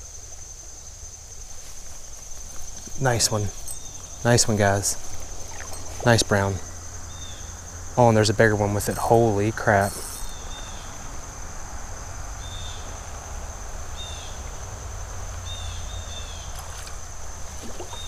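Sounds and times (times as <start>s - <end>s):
high insect drone: 0.0s - 18.0s
creek water rushing: 1.4s - 10.4s, 16.5s - 18.0s
high falling chirps: 2.7s - 10.9s.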